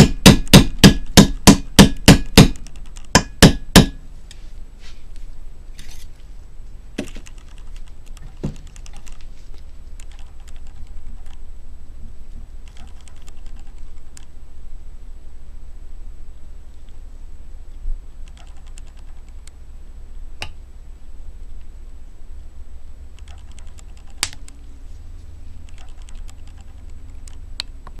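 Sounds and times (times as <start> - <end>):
sharp knocks: 0.0 - 4.0
steady low hum: 0.0 - 28.0.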